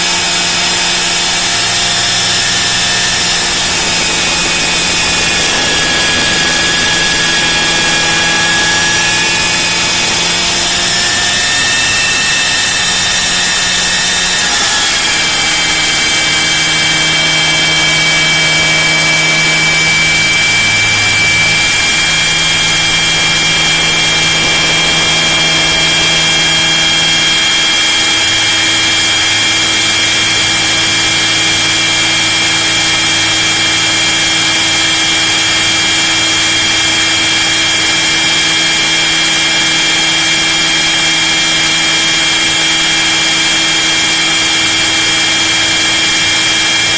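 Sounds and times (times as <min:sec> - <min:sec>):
model helicopter motor whine: 0:00.0 - 0:46.9
rotor noise rushing: 0:00.3 - 0:34.2.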